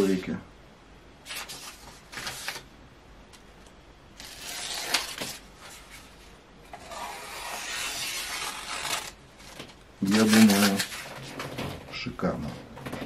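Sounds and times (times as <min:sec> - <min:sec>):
hatchet slicing paper: 0:04.2 - 0:05.4, 0:06.8 - 0:09.2.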